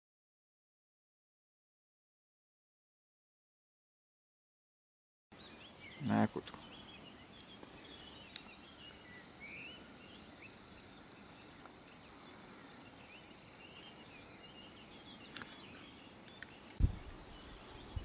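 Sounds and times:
bird chirps: 5.3 - 18.0
high insect chorus: 5.4 - 18.0
low thump: 16.8 - 17.1.

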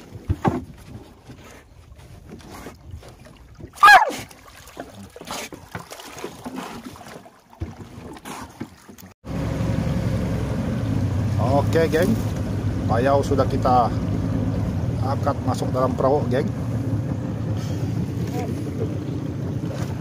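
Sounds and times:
water splashing: 0.0 - 20.0
boat engine drone: 9.2 - 20.0.

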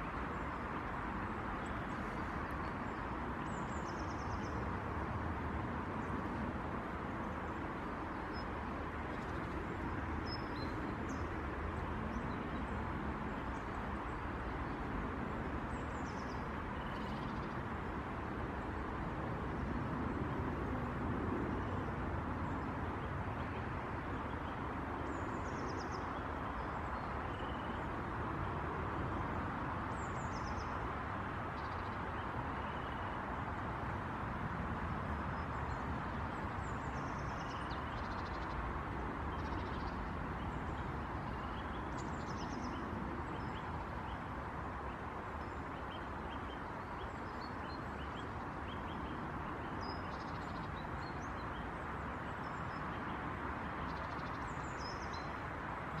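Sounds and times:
songbirds calling: 15.7 - 17.6, 21.6 - 33.3, 35.3 - 56.0.

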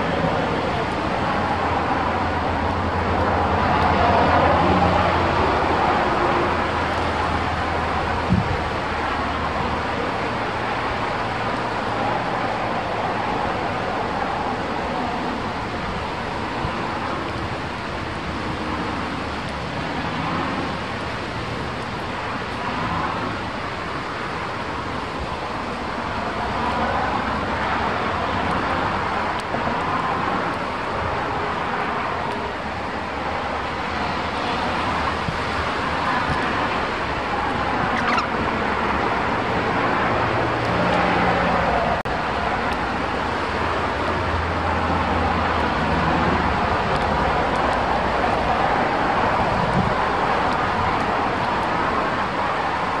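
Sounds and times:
strong wind on microphone: 0.0 - 53.0.

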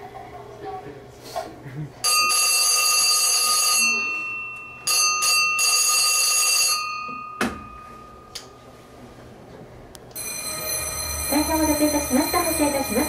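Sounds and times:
departure bell ringing: 2.0 - 8.8, 10.2 - 13.0
thump: 7.4 - 7.7.

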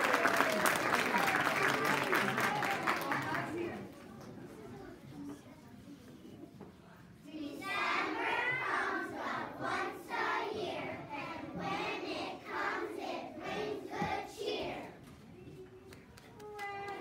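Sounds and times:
children's choir singing: 7.2 - 15.0.

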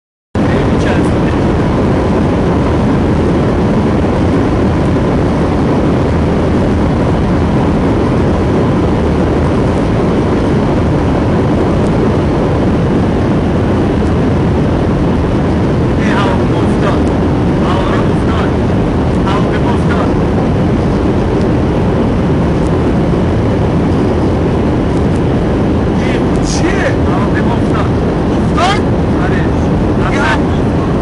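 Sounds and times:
aircraft cabin engine noise: 0.4 - 31.0.

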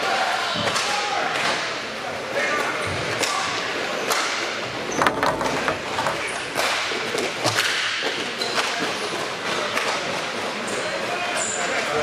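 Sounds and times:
hockey sticks clacking: 4.1 - 7.8.

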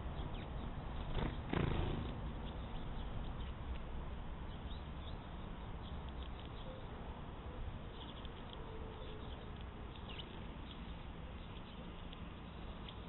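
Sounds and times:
whirring wing flutter: 1.0 - 2.3.

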